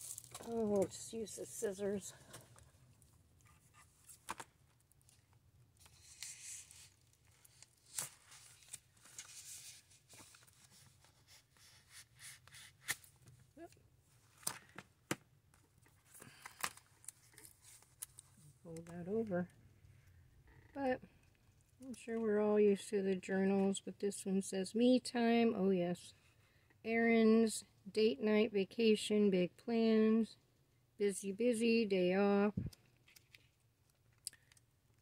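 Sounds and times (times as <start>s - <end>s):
plastic packaging crinkling and tearing: 0.0s - 0.9s, 5.0s - 10.9s.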